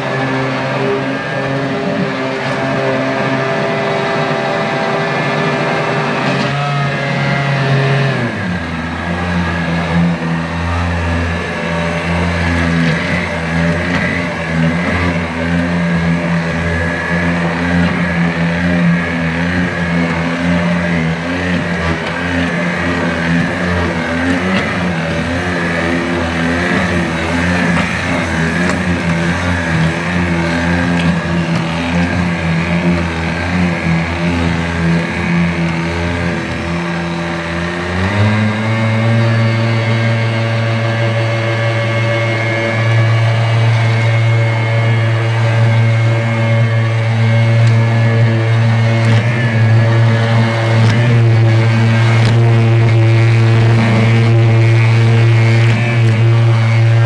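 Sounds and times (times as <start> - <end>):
stick blender motor running: 0.0 - 57.0.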